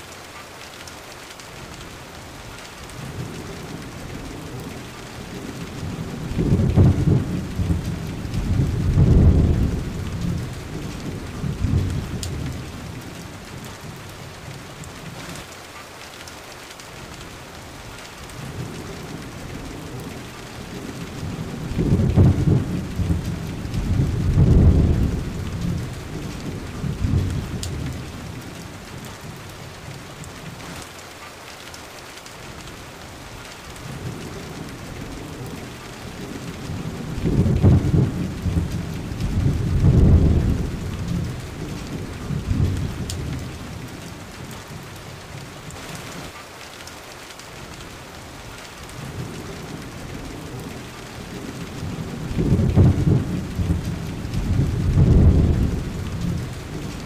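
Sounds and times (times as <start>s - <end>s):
steady rain falling: 0.0s - 57.0s
rolling thunder: 3.0s - 14.0s, 18.3s - 29.4s, 33.8s - 44.8s, 49.0s - 57.0s.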